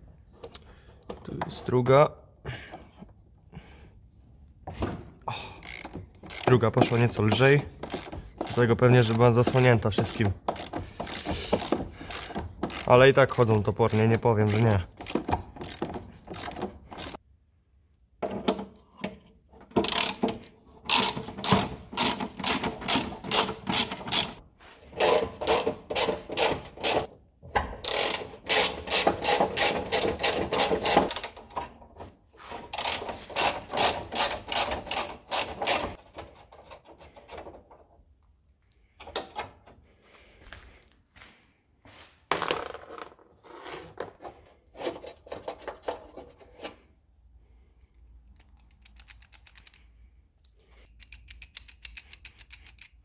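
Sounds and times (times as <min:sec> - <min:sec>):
socket ratchet clicking: 0:05.6 - 0:13.4, 0:48.2 - 0:53.0.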